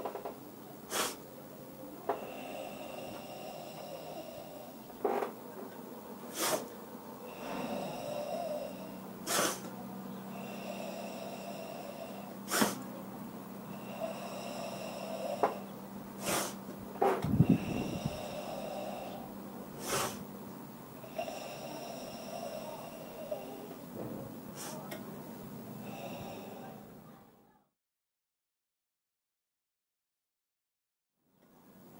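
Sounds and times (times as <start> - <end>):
explosive inhalations: 0.9 - 1.3, 2.1 - 5.4, 6.2 - 25.0
deep hissing exhalation: 0.9 - 27.2.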